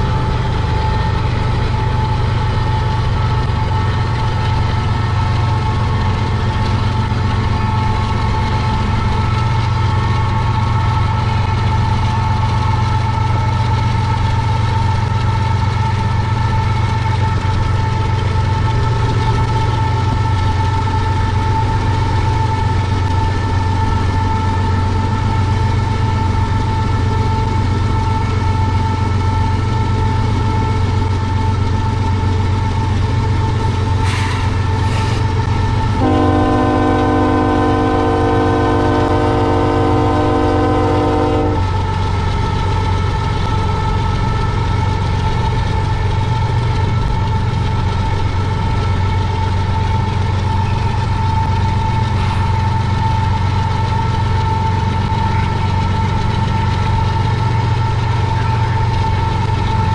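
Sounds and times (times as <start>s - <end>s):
moving train rumble: 0.0s - 59.9s
locomotive air horn blast: 36.0s - 41.8s.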